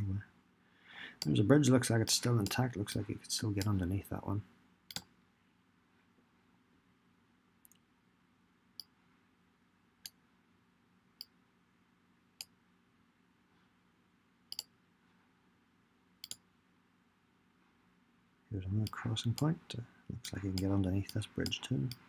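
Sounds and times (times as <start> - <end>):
computer mouse clicking: 4.9 - 5.1, 14.5 - 14.7, 16.2 - 16.4.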